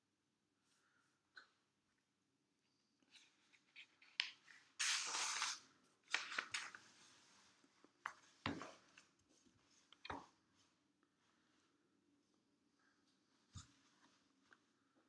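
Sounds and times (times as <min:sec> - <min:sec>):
notebook page turning: 0:03.1 - 0:07.0
paper crackling: 0:04.0 - 0:06.9.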